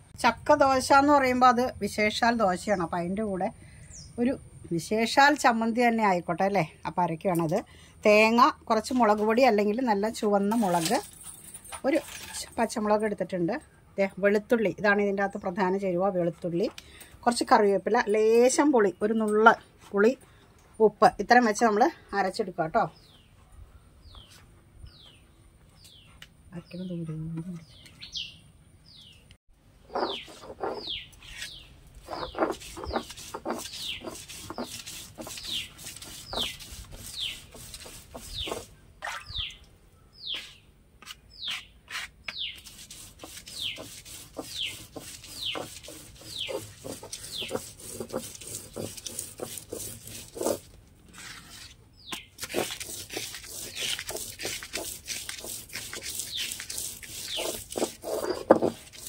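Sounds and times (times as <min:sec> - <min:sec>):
stone roller grinding on stone: 0:11.9 - 0:12.6, 0:29.8 - 0:38.7, 0:42.6 - 0:51.8, 0:52.4 - 0:59.0
bird chirping: 0:22.9 - 0:37.5, 0:38.2 - 0:40.7, 0:41.3 - 0:42.7, 0:43.5 - 0:47.6, 0:51.9 - 0:52.4.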